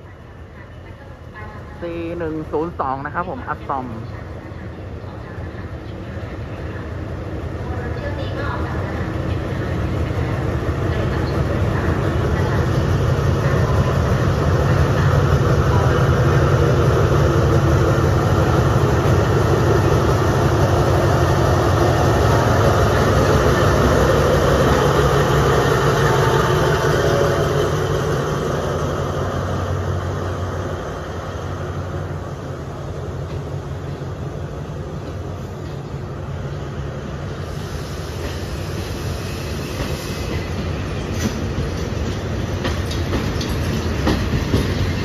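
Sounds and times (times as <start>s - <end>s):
diesel locomotive engine rumble: 0.0s - 45.0s.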